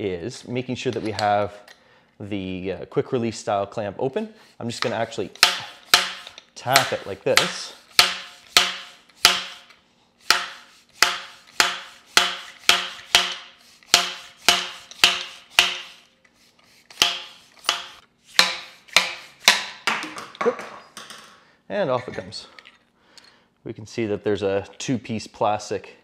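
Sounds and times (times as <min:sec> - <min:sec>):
sharp taps on metal tube: 0:05.4 - 0:09.6, 0:10.3 - 0:15.9, 0:16.9 - 0:20.0.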